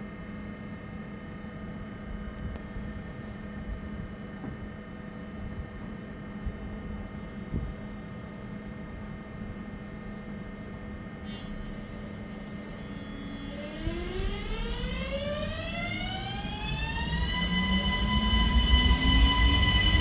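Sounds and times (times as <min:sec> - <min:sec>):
train electrical hum: 0:00.0 - 0:20.0
train traction whine rising: 0:11.2 - 0:20.0.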